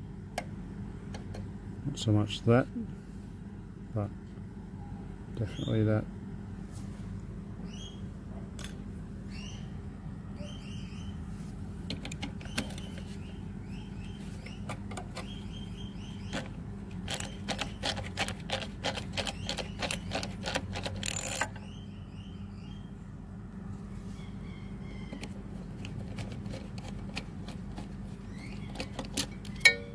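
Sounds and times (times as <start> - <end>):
small bird chirping: 7.6 - 8.1, 9.3 - 11.3, 12.3 - 18.0, 19.1 - 20.3, 21.1 - 23.0, 23.9 - 25.9, 28.1 - 29.7
socket driver ratchet clicking: 17.1 - 21.6.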